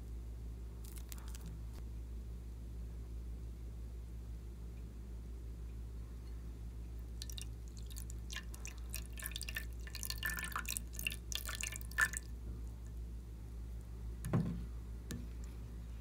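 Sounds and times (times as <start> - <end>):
liquid pouring and splashing: 7.2 - 12.3
dull knock: 14.2 - 14.7.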